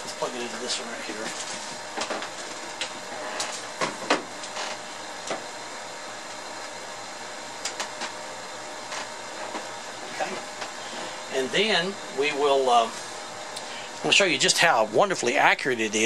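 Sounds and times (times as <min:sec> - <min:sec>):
steady background hiss: 0:00.0 - 0:16.0.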